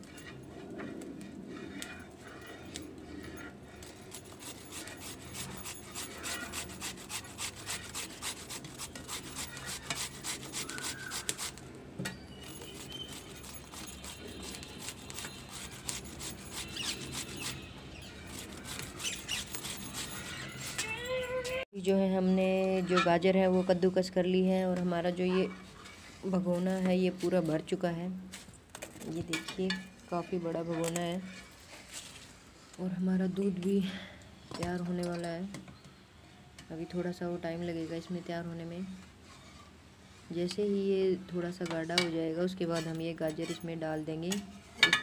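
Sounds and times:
carrots rasping on a grater: 0:04.1 - 0:11.6, 0:12.5 - 0:21.5.

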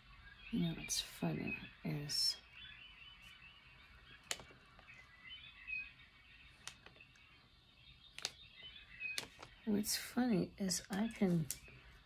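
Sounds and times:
brushwork handling noises: 0:06.5 - 0:07.3, 0:08.1 - 0:09.6.

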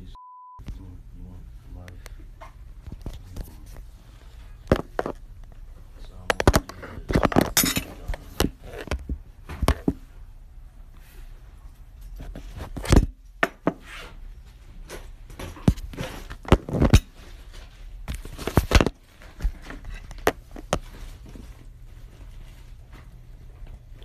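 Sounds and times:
rustling: 0:13.8 - 0:24.0.

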